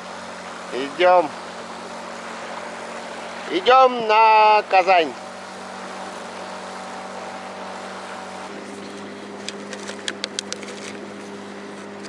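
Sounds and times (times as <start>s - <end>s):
outboard motor running: 0.0s - 12.0s
water noise: 0.0s - 12.0s
wind: 0.0s - 12.0s
sharp clicks: 9.4s - 11.0s.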